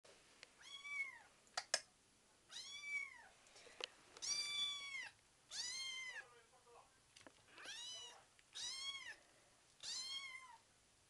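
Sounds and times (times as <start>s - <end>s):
kitten meowing: 0.6s - 1.3s, 2.5s - 3.3s, 4.2s - 6.2s, 7.6s - 9.2s, 9.8s - 10.6s.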